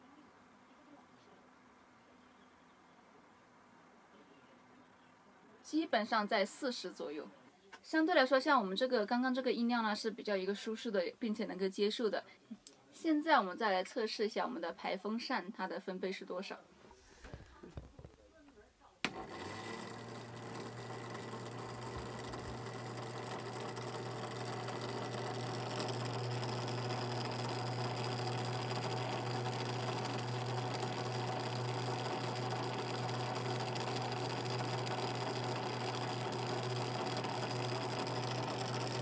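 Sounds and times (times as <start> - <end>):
exhaust fan motor droning: 19.1 - 39.0.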